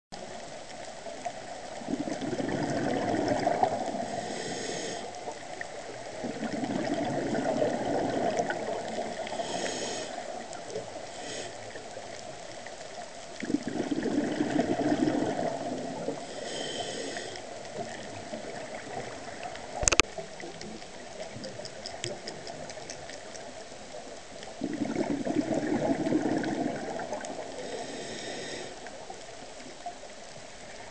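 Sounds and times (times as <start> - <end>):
diver exhaling bubbles underwater: 1.8 - 5.0, 6.1 - 10.2, 13.4 - 16.3, 24.6 - 28.7
sharp click: 19.8 - 20.0.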